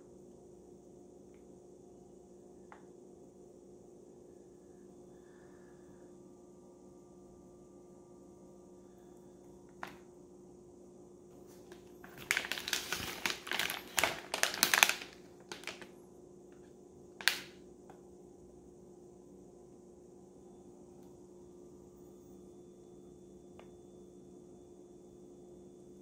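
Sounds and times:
faint steady hum: 0.0 - 26.0
plastic bag crinkling: 11.4 - 15.9, 17.2 - 17.5.

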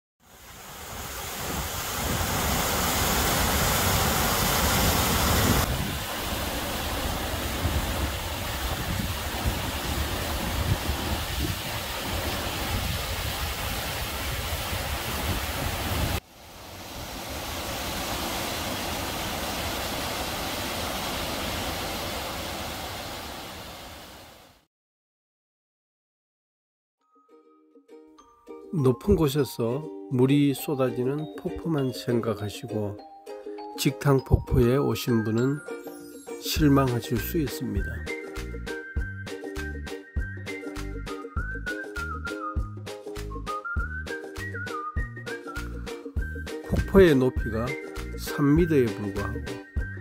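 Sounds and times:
waterfall rushing: 0.3 - 24.6.

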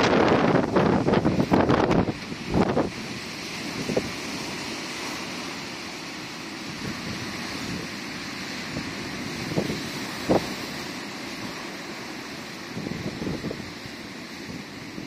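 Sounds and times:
wind buffeting microphone: 0.0 - 4.6, 8.6 - 10.9, 12.6 - 15.0
waves breaking on boulders: 0.0 - 15.0.

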